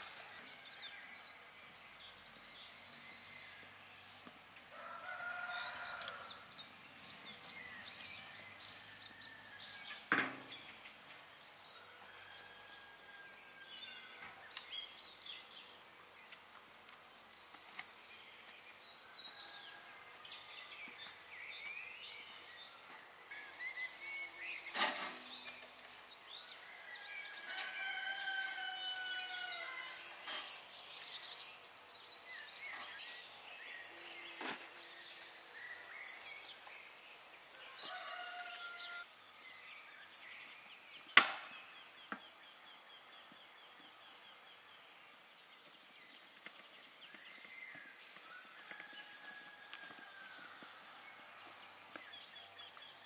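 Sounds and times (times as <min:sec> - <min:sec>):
birds calling and singing: 0:00.0 - 0:53.0.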